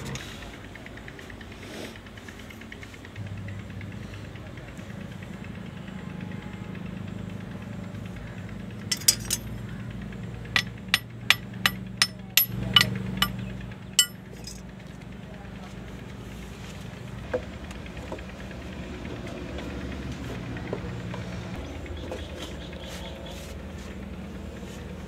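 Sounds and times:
steady low hum: 0:08.6 - 0:14.7
tool tapping on metal: 0:08.9 - 0:09.5, 0:10.6 - 0:13.4, 0:14.0 - 0:14.6.

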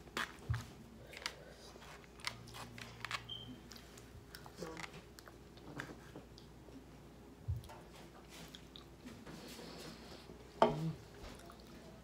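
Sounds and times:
person chewing food: 0:00.0 - 0:06.6, 0:07.6 - 0:09.3.

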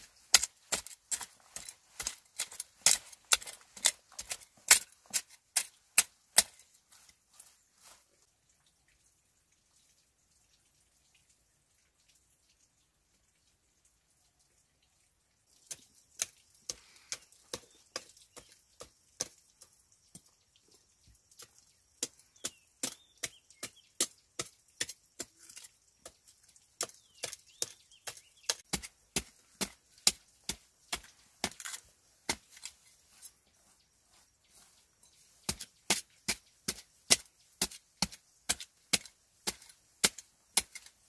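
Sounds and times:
knife chopping into dry soil: 0:00.0 - 0:07.2, 0:15.6 - 0:20.3, 0:21.4 - 0:33.4, 0:34.2 - 0:41.0.

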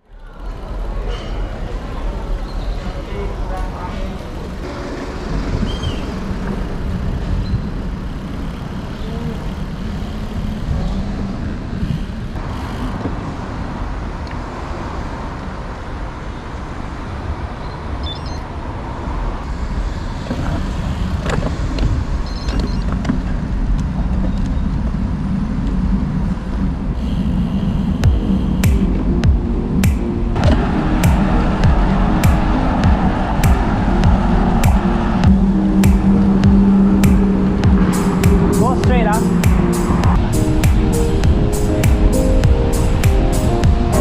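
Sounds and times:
road traffic noise: 0:00.0 - 0:44.0
wind rushing over camera: 0:17.4 - 0:44.0.

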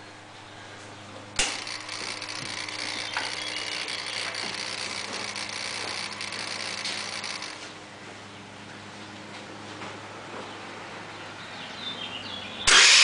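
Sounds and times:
electric starter cranking engine: 0:01.4 - 0:07.7, 0:12.7 - 0:13.0.

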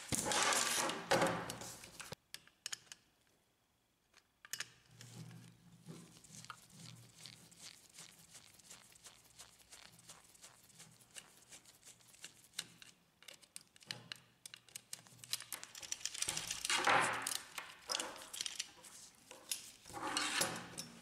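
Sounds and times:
screwdriver turning screw in plastic: 0:12.2 - 0:18.7.

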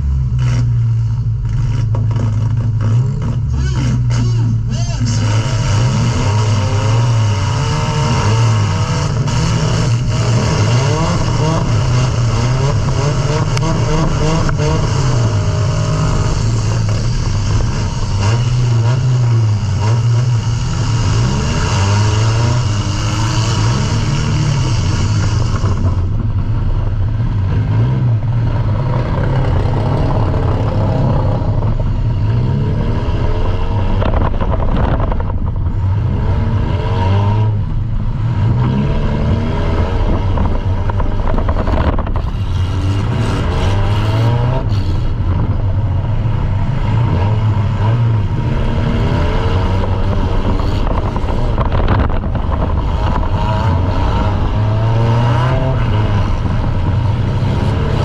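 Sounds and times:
car engine revving: 0:00.0 - 0:58.0
knocks and clatters: 0:01.4 - 0:03.5.

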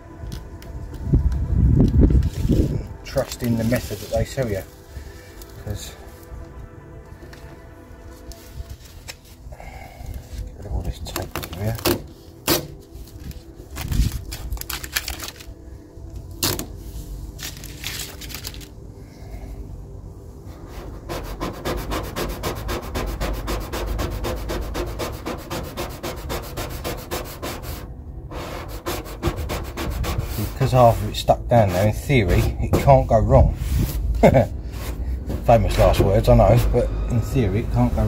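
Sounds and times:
squeegee rubbing on decal tape: 0:20.5 - 0:35.0.

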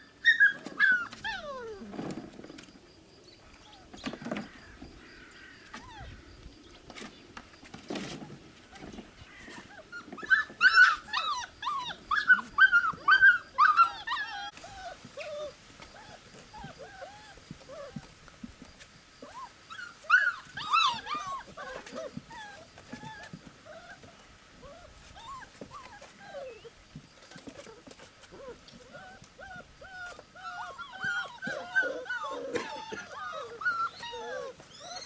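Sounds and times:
puppies squealing and yelping: 0:00.0 - 0:02.3, 0:05.7 - 0:06.2, 0:08.7 - 0:18.0, 0:19.2 - 0:35.0.

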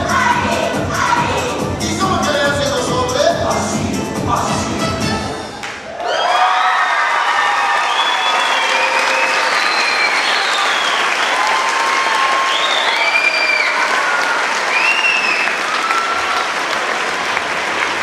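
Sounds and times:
audience applauding: 0:05.6 - 0:18.0.

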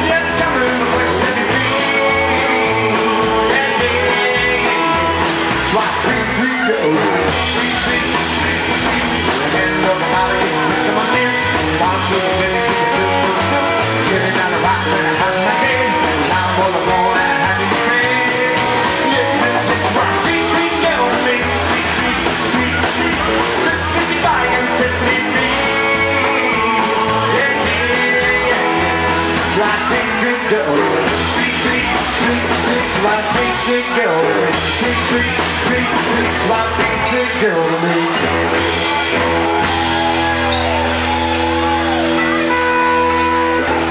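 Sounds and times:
double bass: 0:00.0 - 0:43.9
electric guitar: 0:00.0 - 0:43.9
rock and roll band playing: 0:00.0 - 0:43.9.

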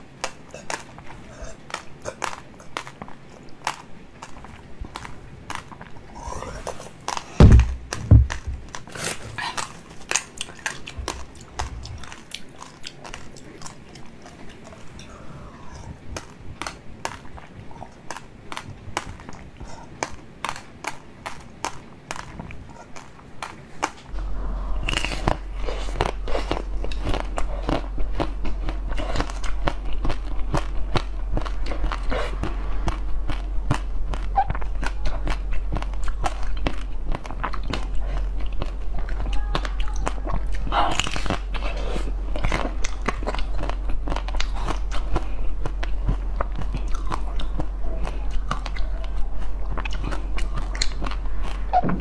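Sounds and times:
steady low hum: 0:00.0 - 0:52.0
heavy low thumps: 0:07.4 - 0:08.8.

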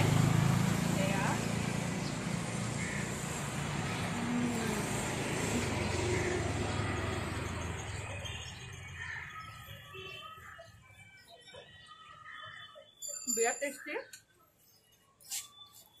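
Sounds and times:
passing motor vehicle rumble: 0:00.0 - 0:09.2.

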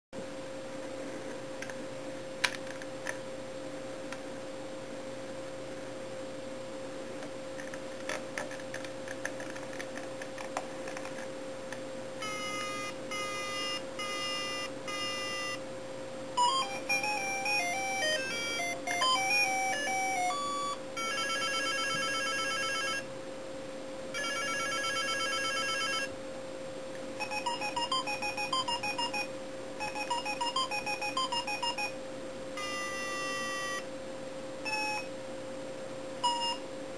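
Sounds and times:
simple beeping melody: 0:12.2 - 0:15.6, 0:16.4 - 0:23.0, 0:27.2 - 0:32.0, 0:32.6 - 0:33.9, 0:36.2 - 0:36.6
warbling ringtone: 0:12.2 - 0:15.6, 0:16.4 - 0:23.0, 0:24.2 - 0:26.1, 0:27.2 - 0:32.0, 0:32.6 - 0:33.8, 0:34.7 - 0:35.1, 0:36.2 - 0:36.6
short repeated beeps: 0:36.2 - 0:36.6.

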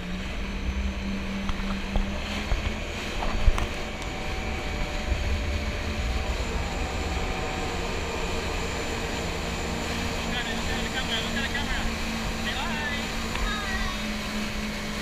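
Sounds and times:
jet ski engine drone: 0:00.0 - 0:15.0
wind buffeting: 0:01.8 - 0:10.3.

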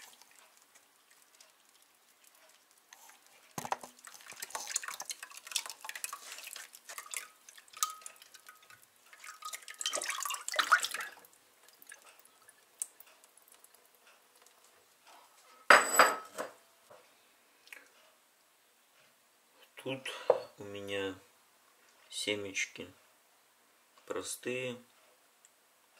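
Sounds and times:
water dripping through sieve: 0:00.0 - 0:15.2
sieve clattering on bowl: 0:03.6 - 0:11.2.

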